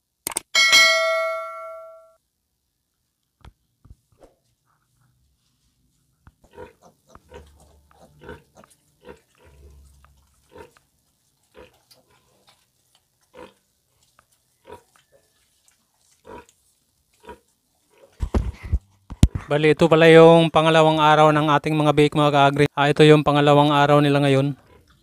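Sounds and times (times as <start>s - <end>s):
pigs grunting: 6.4s - 12.7s, 13.3s - 14.0s, 16.1s - 16.5s, 17.2s - 18.3s.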